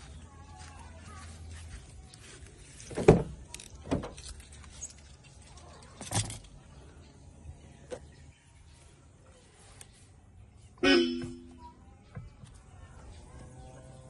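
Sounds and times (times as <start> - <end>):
thumps: 10.8 - 11.6.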